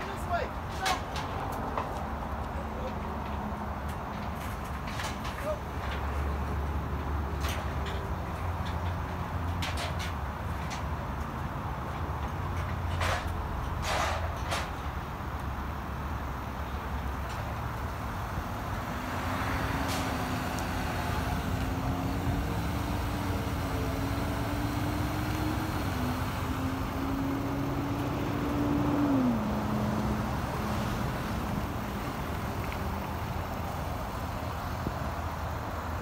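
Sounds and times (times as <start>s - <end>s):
diesel truck engine running: 15.7s - 36.0s.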